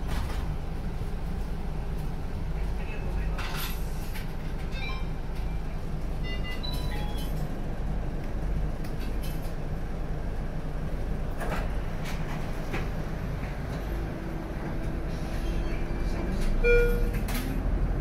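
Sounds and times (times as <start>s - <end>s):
bus engine drone: 0.0s - 18.0s.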